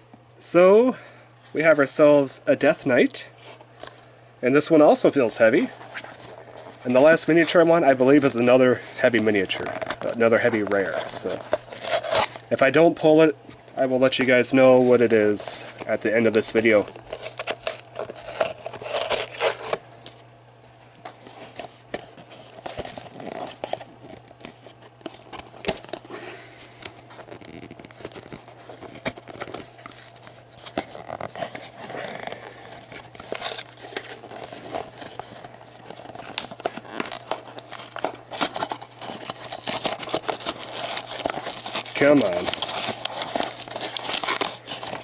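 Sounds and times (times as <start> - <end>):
tearing and crinkling wrapping: 5.0 - 13.1, 13.9 - 20.2, 20.8 - 45.0.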